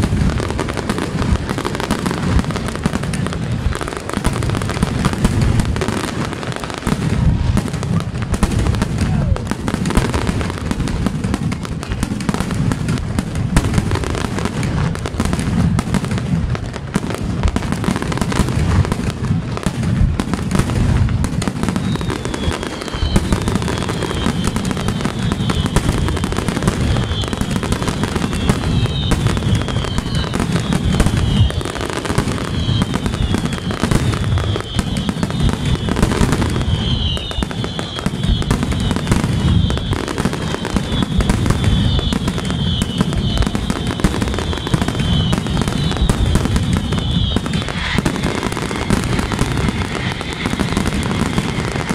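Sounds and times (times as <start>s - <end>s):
fireworks bursts and crackling: 0.0s - 51.9s
fireworks whistling falling in pitch: 0.0s - 51.9s.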